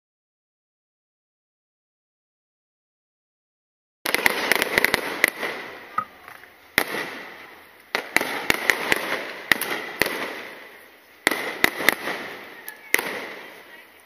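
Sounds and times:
firework shells bursting: 4.1s - 13.9s.

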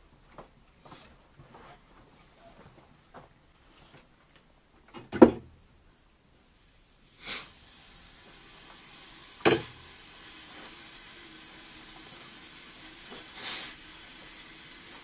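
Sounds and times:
sharp knocks in pipes: 5.0s - 5.6s, 9.4s - 9.8s
water and air hissing in pipes: 6.3s - 15.0s.

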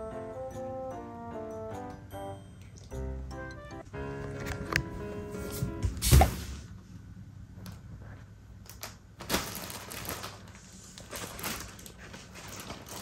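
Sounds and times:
paper bag rustling: 9.2s - 13.0s.

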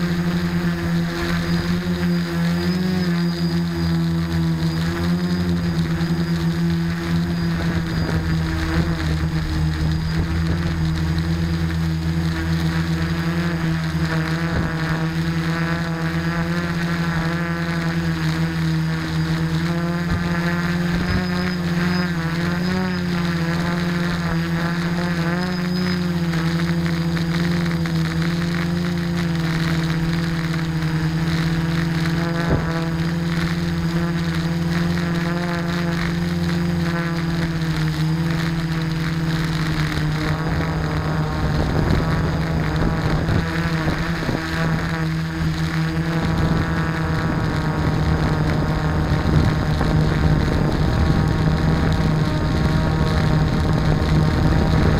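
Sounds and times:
rough rushing noise: 0.0s - 15.6s
drone motors humming: 0.0s - 54.9s.

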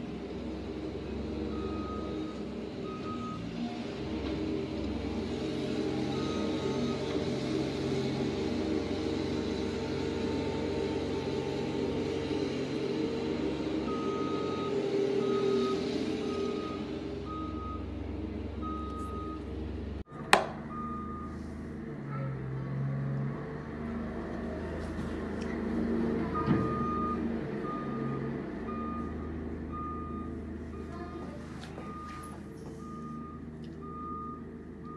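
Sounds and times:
diesel engine running: 0.0s - 34.9s
reverse alarm beeping: 13.9s - 17.9s, 18.6s - 19.4s, 20.7s - 21.4s, 31.8s - 34.9s.

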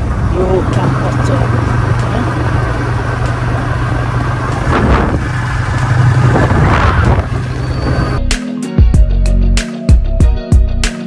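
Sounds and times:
motorcycle engine cruising: 0.0s - 8.2s
rushing noise: 0.0s - 8.2s
wind and road noise: 0.0s - 8.3s.

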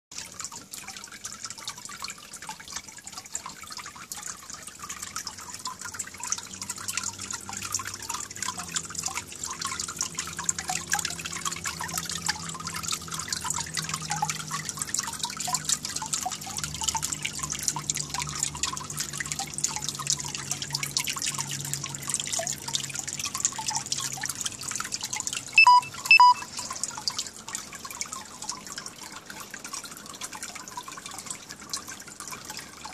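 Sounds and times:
water dripping into pond: 0.1s - 32.9s
short loud beeps: 25.6s - 26.4s.

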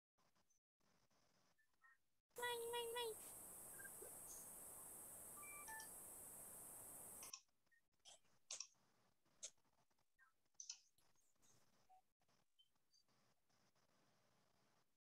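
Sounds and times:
faint steady hiss: 2.4s - 7.4s
faint clicks: 5.6s - 8.7s.

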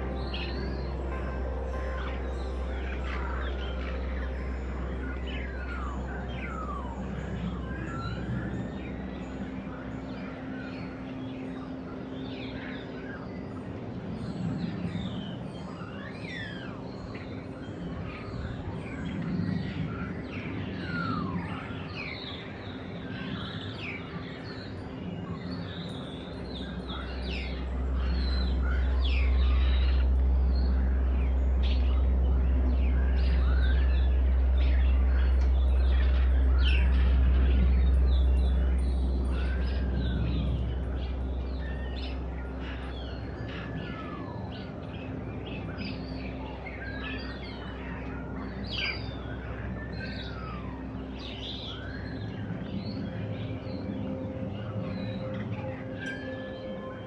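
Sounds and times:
starlings chirping and whistling: 0.0s - 57.0s
steady low rumble: 0.0s - 57.0s.

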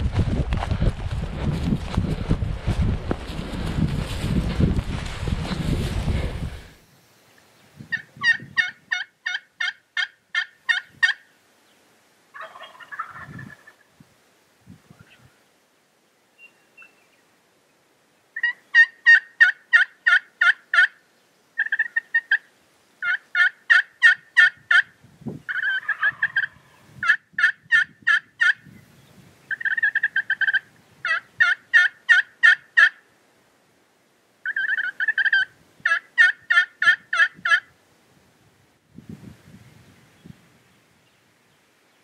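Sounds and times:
turkey yelping: 7.9s - 11.2s, 12.3s - 13.8s, 18.4s - 21.0s, 21.6s - 22.4s, 23.0s - 24.9s, 25.5s - 28.6s, 29.5s - 33.0s, 34.4s - 37.7s.

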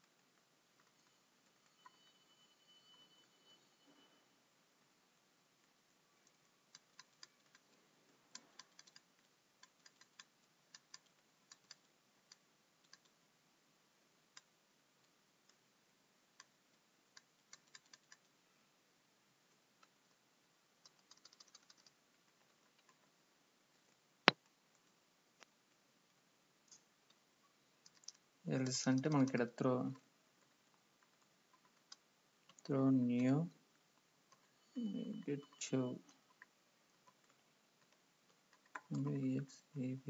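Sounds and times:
keyboard typing: 6.2s - 13.2s, 16.3s - 18.4s, 20.8s - 25.0s, 27.8s - 39.2s.

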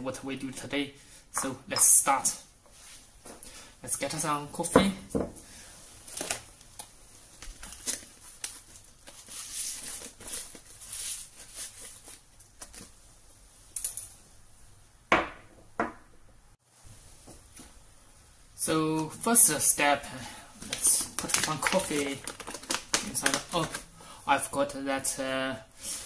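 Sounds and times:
packaging crinkling and rustling: 6.0s - 13.0s, 20.6s - 24.0s.

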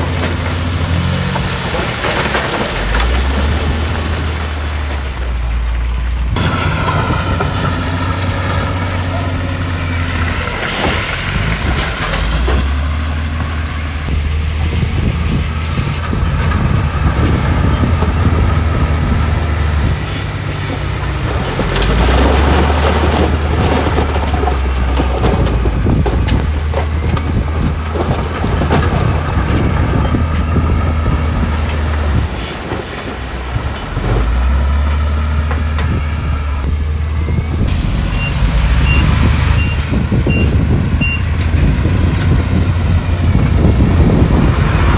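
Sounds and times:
diesel machinery engines revving: 0.0s - 44.9s
reversing alarm beeping: 37.2s - 41.3s.

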